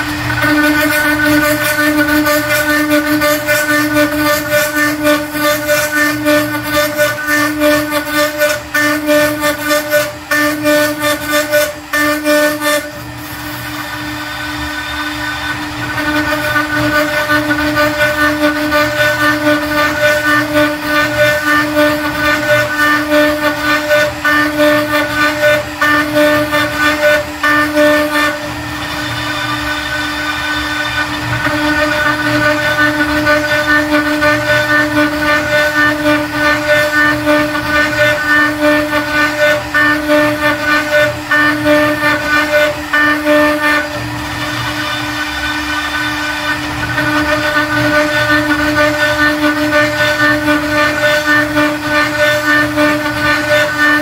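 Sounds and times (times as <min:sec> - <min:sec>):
router spindle tone: 0:00.0 - 0:54.0.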